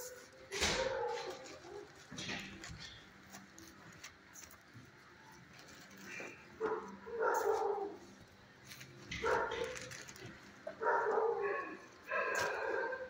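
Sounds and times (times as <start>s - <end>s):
large dog barking: 10.7s - 13.0s.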